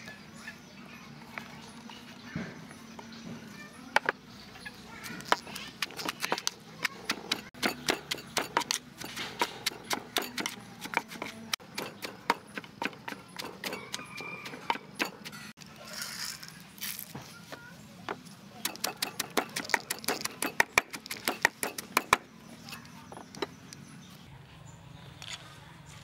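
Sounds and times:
wooden pestle knocking in mortar: 5.2 - 15.5, 18.1 - 22.3
peanuts rattling into mortar: 11.8 - 17.1, 18.7 - 22.1.

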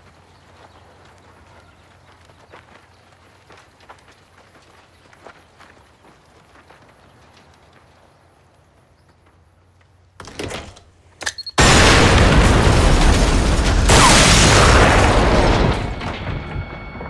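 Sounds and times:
door rattling open with click: 10.2 - 11.6
huge explosion: 11.6 - 16.8.

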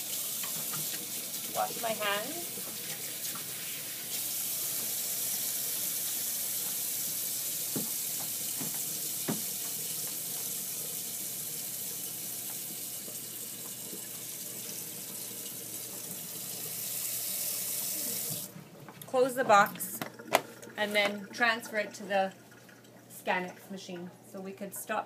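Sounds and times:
tap water running into steel sink: 0.0 - 18.6.

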